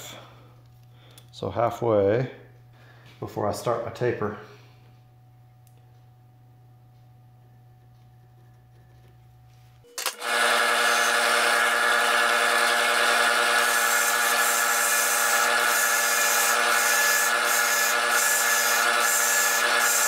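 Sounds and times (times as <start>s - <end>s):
drill press humming: 10.0s - 20.0s.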